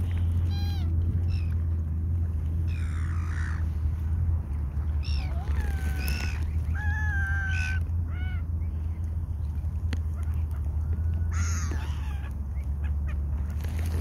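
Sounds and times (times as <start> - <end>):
steady low rumble: 0.0 - 14.0
swans calling: 0.3 - 1.7, 4.9 - 8.9, 10.0 - 13.6.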